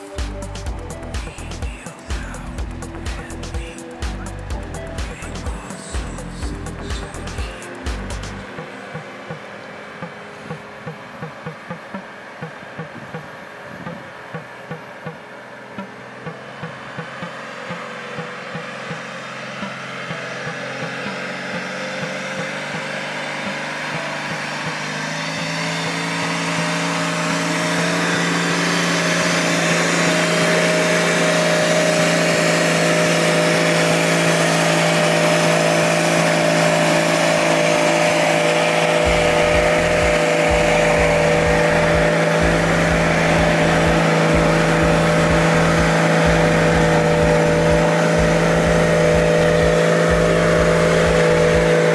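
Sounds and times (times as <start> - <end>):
off-road vehicle engine revving: 0.0 - 51.9
low uneven rumble: 39.0 - 51.9.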